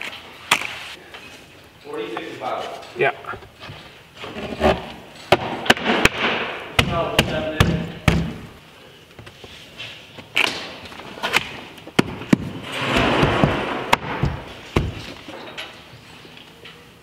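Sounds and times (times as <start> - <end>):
scraping rub: 3.6 - 5.0, 12.6 - 13.8.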